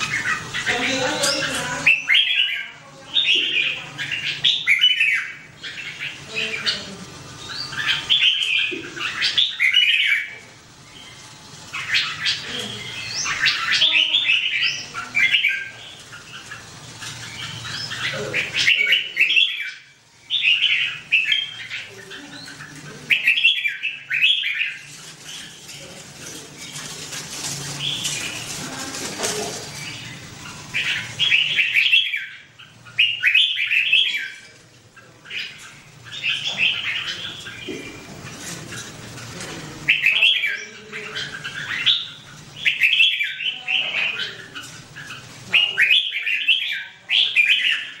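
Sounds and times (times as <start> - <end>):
birds warbling: 0.0 - 48.0
wing flutter rustle: 24.6 - 31.3, 34.4 - 39.9.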